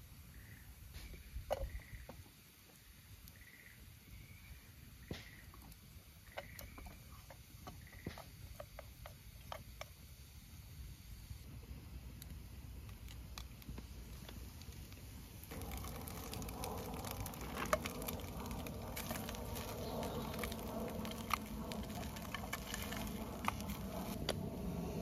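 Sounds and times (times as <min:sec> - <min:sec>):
food sizzling in a pot: 0:13.8 - 0:24.2.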